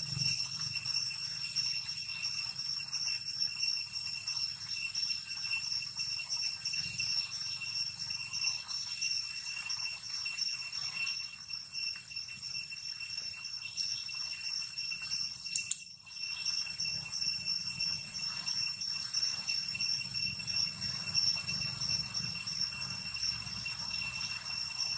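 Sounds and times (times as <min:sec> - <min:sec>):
insect chorus trilling: 0:00.0 - 0:24.9
brief click: 0:15.6 - 0:15.9.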